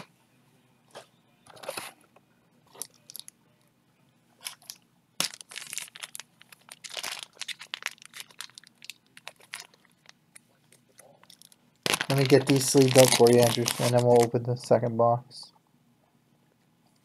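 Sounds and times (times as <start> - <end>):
plastic packaging crinkling: 4.4 - 14.4.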